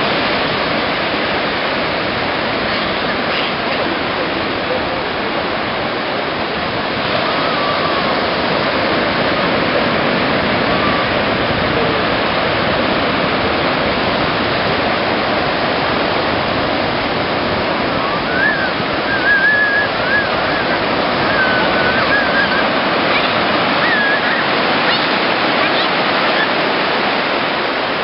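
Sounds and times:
ocean surf breaking: 0.0 - 28.0
child calling out: 7.1 - 8.5, 10.6 - 12.1, 17.9 - 26.7.

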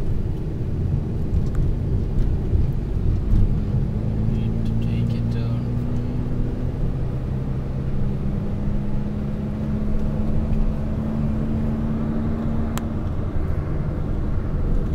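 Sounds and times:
car engine and road noise: 0.0 - 14.9.

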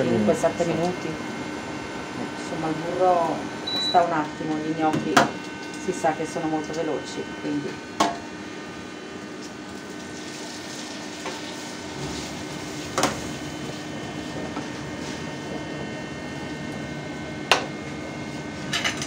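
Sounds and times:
kitchen hum: 0.0 - 19.0
gnocchi sizzling in butter: 7.9 - 15.4.

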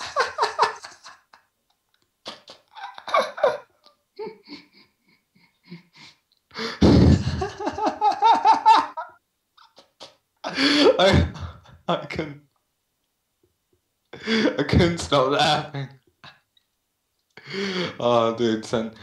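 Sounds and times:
people laughing: 0.0 - 1.4, 2.3 - 5.8, 6.7 - 9.1.

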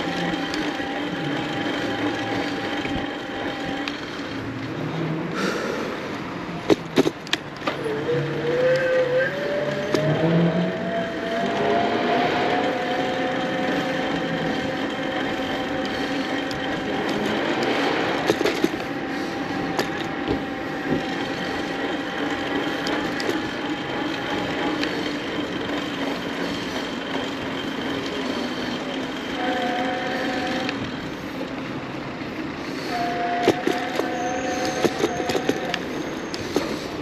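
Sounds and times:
electric motor whine: 0.0 - 4.5, 7.7 - 31.9, 32.7 - 36.4
bike clicks and rattles: 0.0 - 4.8, 5.4 - 37.0
wind and tyre noise: 0.0 - 37.0.

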